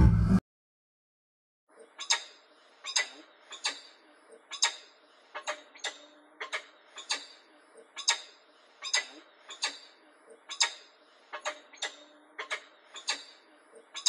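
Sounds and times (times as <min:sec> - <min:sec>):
hawk clicking calls: 0:05.4 - 0:07.3, 0:08.0 - 0:09.8, 0:10.5 - 0:10.8, 0:11.4 - 0:13.3.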